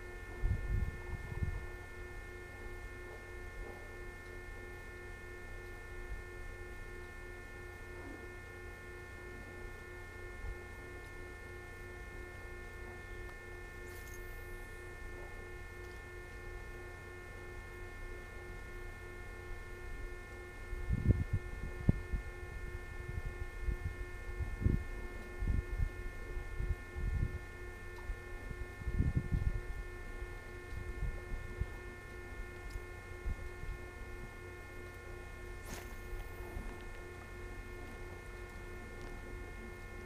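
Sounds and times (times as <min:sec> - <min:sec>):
electrical hum: 0:00.0 - 0:40.0.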